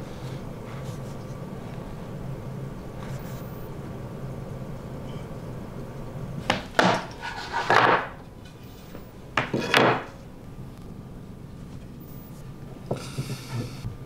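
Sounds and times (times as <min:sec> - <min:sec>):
steady low hum: 0:00.0 - 0:14.0
wooden knocks and scrapes: 0:06.5 - 0:10.2.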